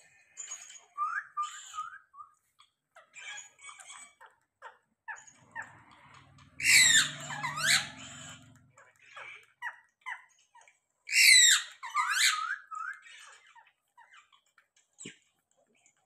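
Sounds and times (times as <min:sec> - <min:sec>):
parakeet chirps and squawks: 0:00.1 - 0:16.0
parakeet screech: 0:05.5 - 0:08.6, 0:11.1 - 0:13.5.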